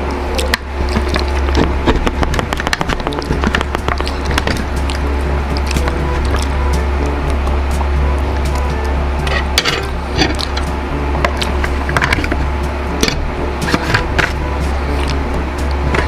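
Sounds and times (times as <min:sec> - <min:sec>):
steady low hum: 0:00.0 - 0:16.0
cutlery scraping foil tray: 0:13.1 - 0:14.4.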